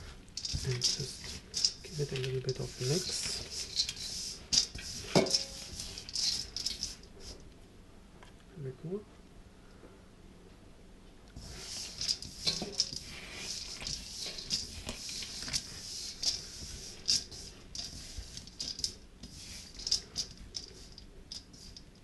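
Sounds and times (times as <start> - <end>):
nuts rattling in steel bowl: 0.4 - 7.0, 11.8 - 21.9.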